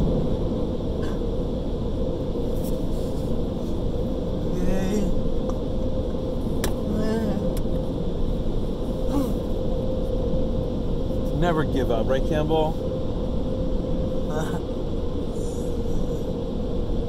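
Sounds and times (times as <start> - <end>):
steady hum: 0.0 - 17.0
short wavering voice-like sounds: 9.1 - 9.5.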